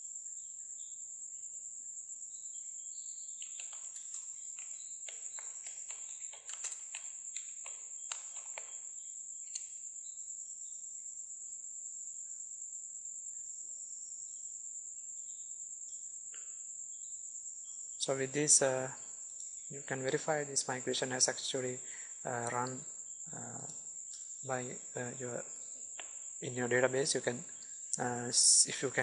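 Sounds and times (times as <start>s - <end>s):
keyboard typing: 3.4s - 8.8s.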